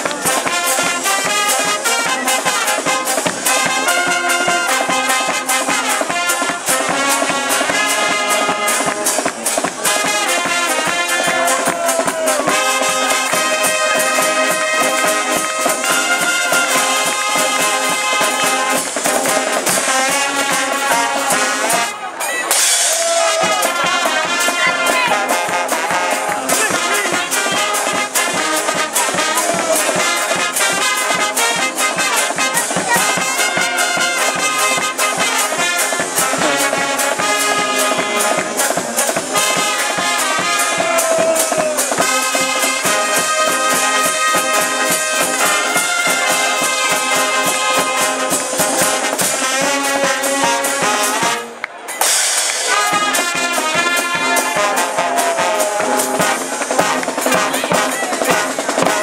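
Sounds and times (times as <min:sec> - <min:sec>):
marching bass drum beat: 0:00.0 - 0:21.9, 0:22.5 - 0:51.4, 0:52.0 - 0:59.0
brass instruments playing tune: 0:00.0 - 0:59.0.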